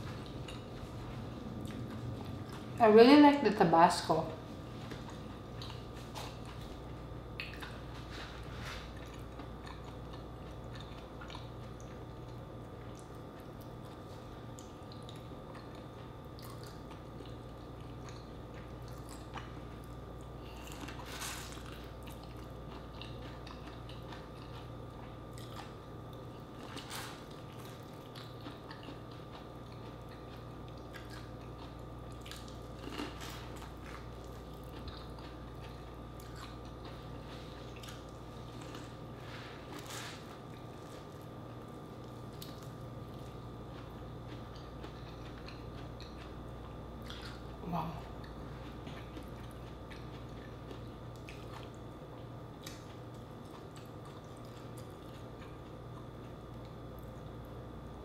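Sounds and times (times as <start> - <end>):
steady low hum: 0.0 - 58.0
biting and chewing food: 4.8 - 47.6, 48.2 - 57.6.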